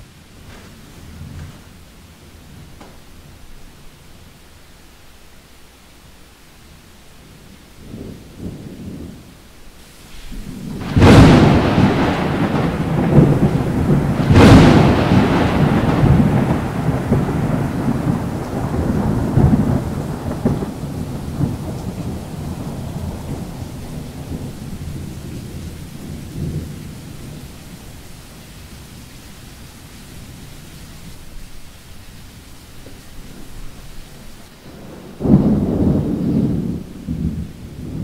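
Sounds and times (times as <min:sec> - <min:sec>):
thunderclaps with rolling rumble: 0:07.3 - 0:09.5, 0:10.2 - 0:29.1, 0:32.3 - 0:38.0.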